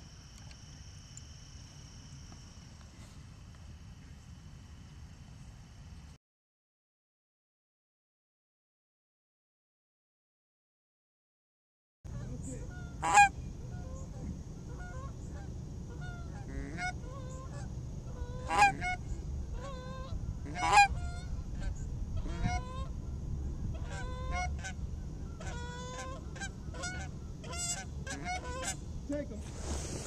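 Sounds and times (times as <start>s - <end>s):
geese honking: 12.1s - 28.9s.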